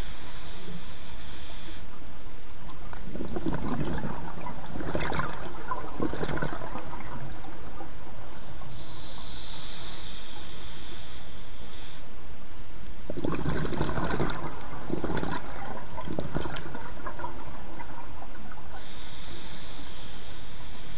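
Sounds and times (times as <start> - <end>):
regulator inhalation hiss: 0.0 - 2.5, 8.3 - 12.7, 18.0 - 20.9
burble of exhaled bubbles: 2.8 - 7.9, 13.1 - 18.8.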